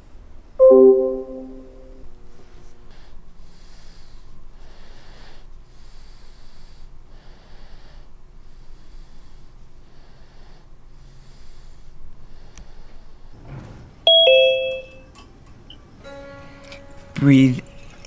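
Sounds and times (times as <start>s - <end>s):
person breathing loudly: 2.9s - 13.2s.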